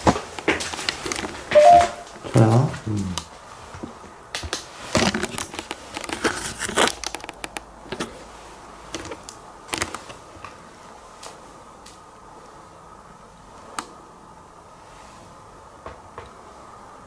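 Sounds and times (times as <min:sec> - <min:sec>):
handling clicks and rustles: 0:00.0 - 0:10.6
faint steady whine: 0:05.0 - 0:17.0.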